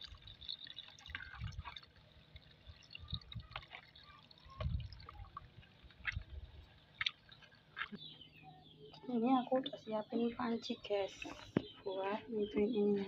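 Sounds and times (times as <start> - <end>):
water splashing in metal bowl: 0.0 - 8.0.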